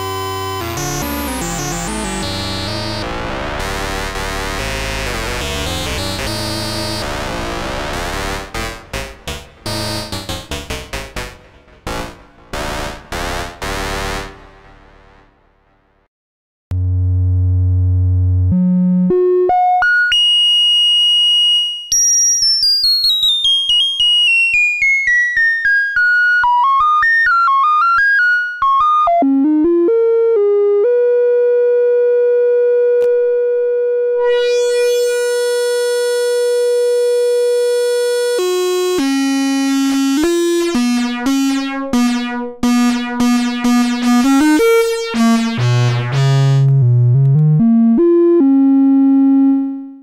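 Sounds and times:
analog synthesizer notes: 0.0 - 15.8, 28.7 - 50.0.

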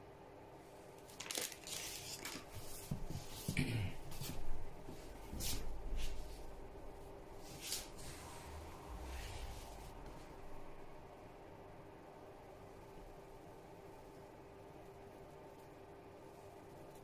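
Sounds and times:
scrapes and rustles in bedding: 7.3 - 10.5.

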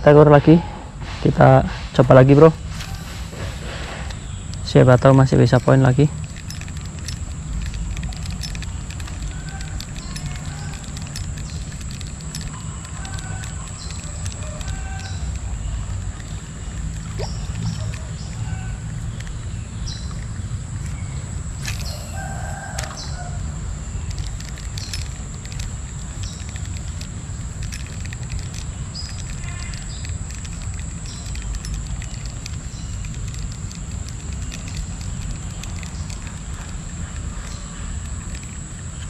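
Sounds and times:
thin high whine: 0.0 - 39.0
high chirps and clicks: 2.8 - 39.0.

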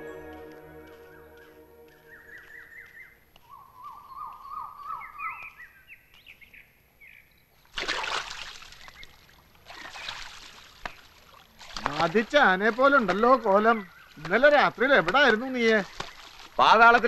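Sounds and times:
bird singing: 0.0 - 7.7, 12.8 - 16.3
splash of pond water: 7.7 - 13.4, 15.1 - 17.0.

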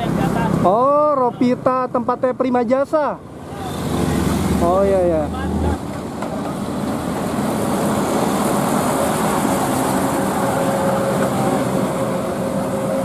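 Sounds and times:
road noise hum: 0.0 - 13.0
dump truck engine passing: 3.2 - 13.0.

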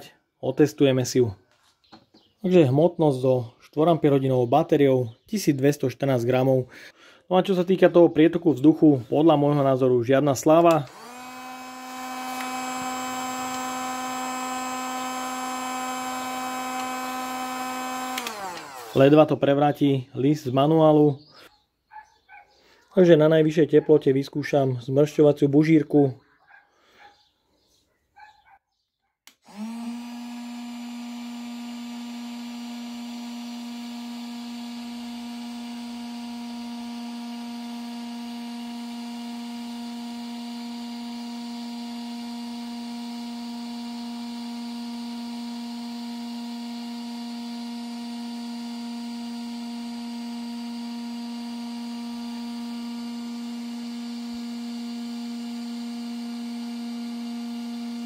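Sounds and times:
heat gun fan humming: 8.4 - 19.6, 29.3 - 58.0.

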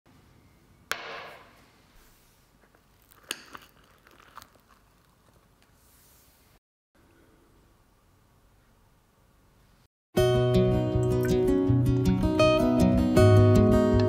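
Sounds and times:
spoon crunching through dessert: 2.6 - 5.7.

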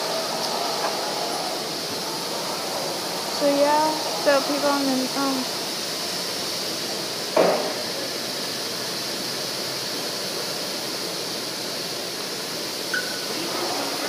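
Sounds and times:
high-pressure water spray hissing: 0.0 - 14.0
loud knock: 7.4 - 7.8.

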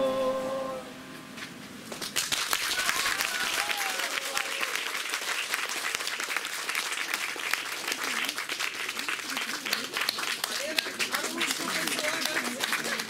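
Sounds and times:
audience applauding: 1.9 - 13.0.

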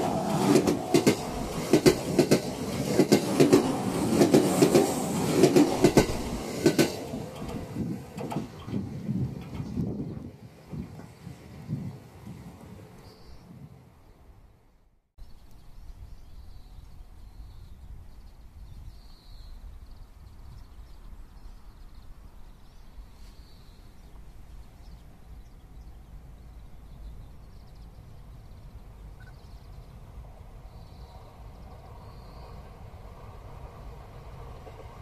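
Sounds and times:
wind rumble on microphone: 7.1 - 14.2.

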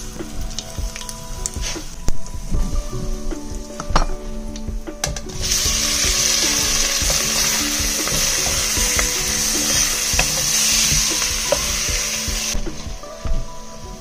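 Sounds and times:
oil popping: 5.0 - 12.9
food sizzling in hot oil: 5.3 - 12.6.

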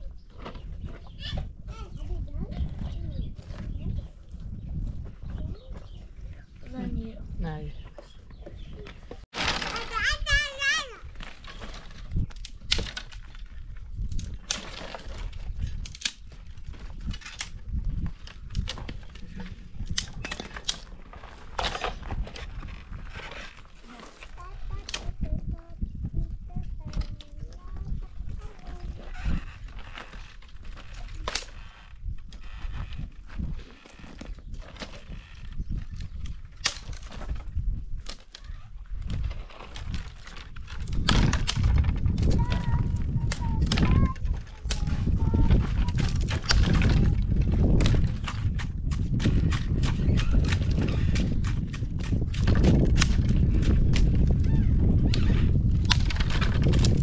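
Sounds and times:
brittle wood snapping: 11.2 - 16.4, 19.8 - 20.9, 29.8 - 31.7, 36.2 - 37.4, 45.8 - 54.3, 55.0 - 57.0
dry branches snapping: 11.2 - 19.2, 19.8 - 25.2, 29.1 - 57.0.

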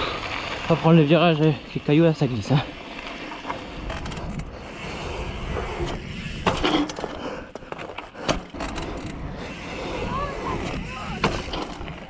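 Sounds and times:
bike tyres rolling on asphalt: 0.0 - 12.0.

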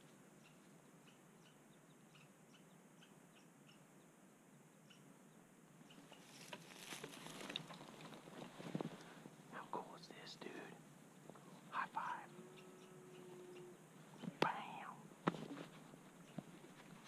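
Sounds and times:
soft rustling and clicks: 5.9 - 9.2, 14.1 - 17.0
faint high chirps: 11.7 - 15.0.

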